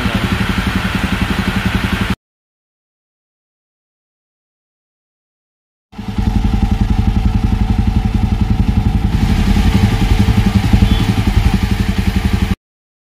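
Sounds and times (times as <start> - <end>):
motorcycle engine idling: 0.0 - 2.2, 6.0 - 12.6.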